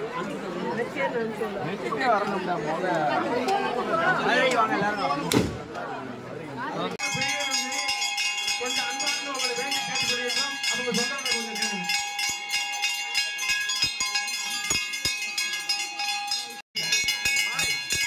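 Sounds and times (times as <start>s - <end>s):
crowd voices: 0.0s - 18.0s
temple bells ringing: 7.0s - 18.0s.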